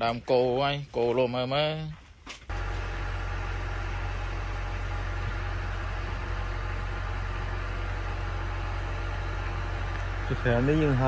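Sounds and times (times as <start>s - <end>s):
motor humming: 2.5s - 11.0s
noisy whirr: 2.5s - 11.0s.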